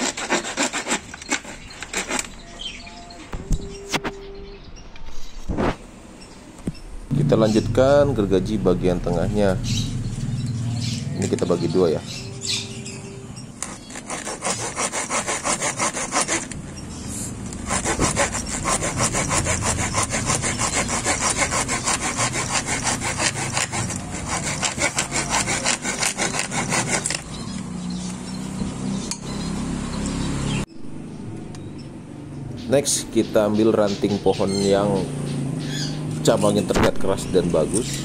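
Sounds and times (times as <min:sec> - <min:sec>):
hand saw cutting wood: 0:00.0 - 0:02.4, 0:13.6 - 0:16.6, 0:17.6 - 0:27.4.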